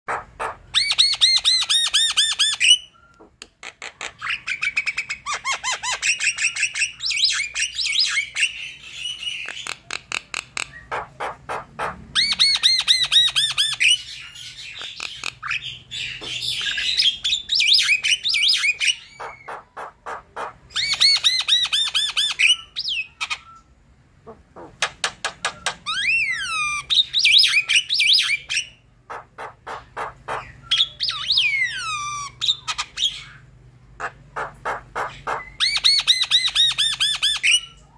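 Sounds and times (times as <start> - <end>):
bird chattering and squawking: 0.1 - 37.9.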